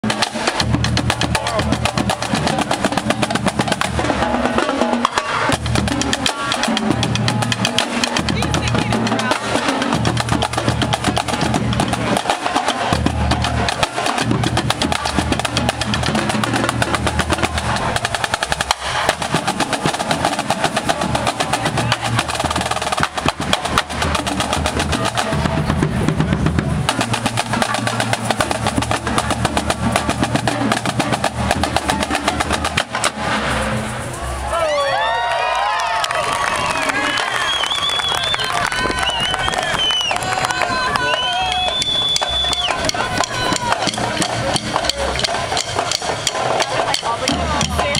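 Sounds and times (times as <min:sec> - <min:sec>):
snare drum strokes: 0:00.0 - 0:34.6, 0:41.1 - 0:47.9
tenor drums: 0:00.0 - 0:34.8, 0:38.6 - 0:47.9
low bass drum beats: 0:12.9 - 0:34.1, 0:40.2 - 0:47.9.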